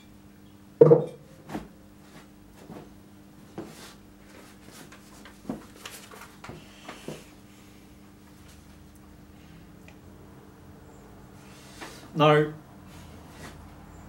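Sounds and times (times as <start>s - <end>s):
faint steady hum: 0.0s - 14.0s
paper rustling: 4.5s - 6.4s.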